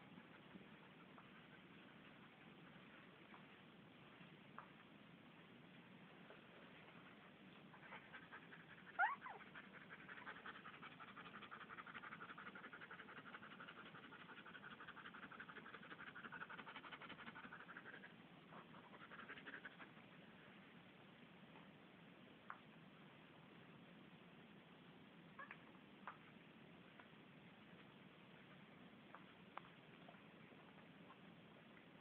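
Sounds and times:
puppies squealing and whining: 8.9 - 9.5.

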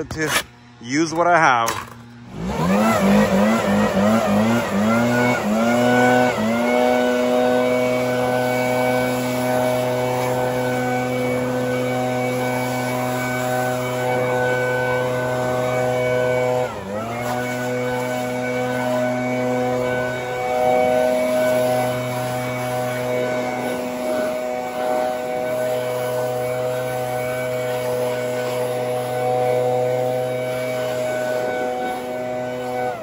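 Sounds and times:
leaf blower running: 0.6 - 33.0.

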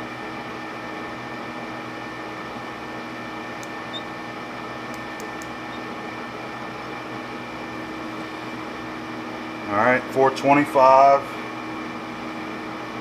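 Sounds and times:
machine hum with tones: 2.0 - 10.1
micrometer clicks: 4.9 - 5.9.

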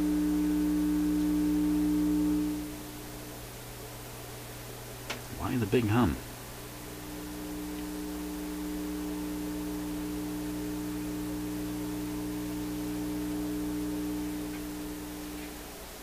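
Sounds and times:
amplifier mains hum: 0.0 - 16.0.

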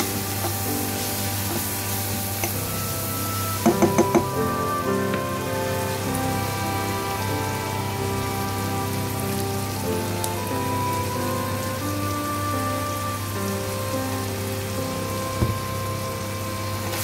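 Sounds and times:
meat sizzling in a pot: 0.0 - 12.6
background music with held notes: 0.0 - 17.0.

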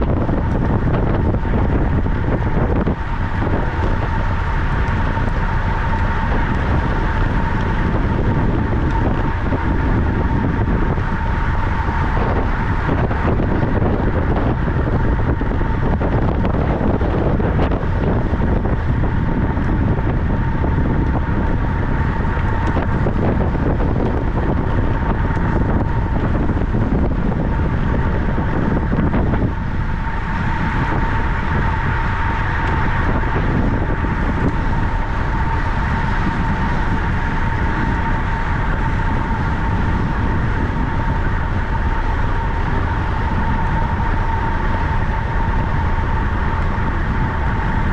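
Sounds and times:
bicycle rolling noise: 0.0 - 47.9
steady high hum: 0.0 - 47.9
wind rushing over microphone: 0.0 - 47.9.

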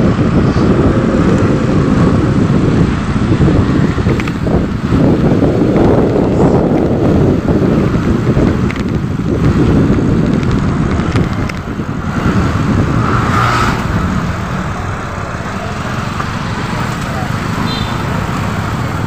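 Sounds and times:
motorcycle and car engines: 0.0 - 19.0
wind on microphone: 0.0 - 19.0.

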